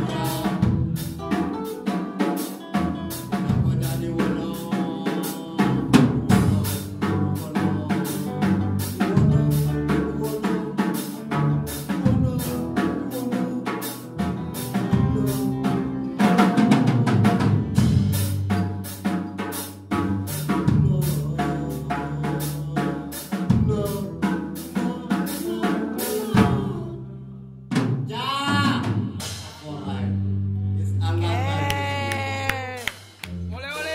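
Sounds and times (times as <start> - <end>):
drum kit beating: 0.0 - 27.0, 27.7 - 30.0, 31.3 - 33.9
electric guitar: 0.0 - 27.1
bass guitar: 0.0 - 33.9.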